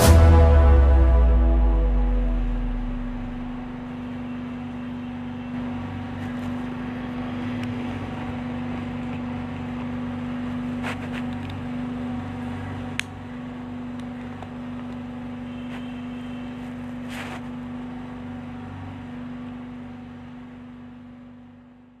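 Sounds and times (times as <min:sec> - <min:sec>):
vehicle engine running: 0:00.0 - 0:22.0.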